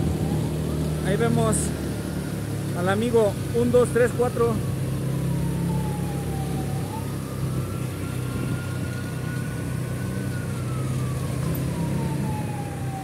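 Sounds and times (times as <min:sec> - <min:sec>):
siren wailing: 0:00.0 - 0:13.0.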